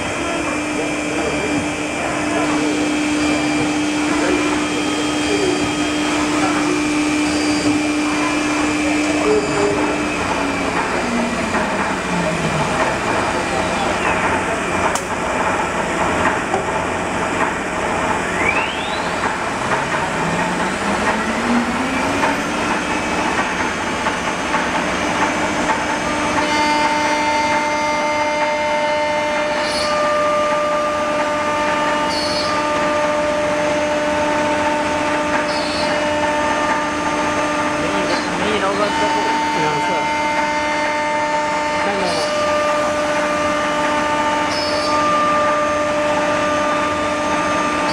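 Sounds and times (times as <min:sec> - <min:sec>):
wood router mechanical din: 0:00.0 - 0:15.0, 0:18.3 - 0:23.8, 0:26.2 - 0:47.9
motor spinning up whine: 0:00.0 - 0:15.2, 0:16.5 - 0:26.4
higher steady whines: 0:00.0 - 0:47.9.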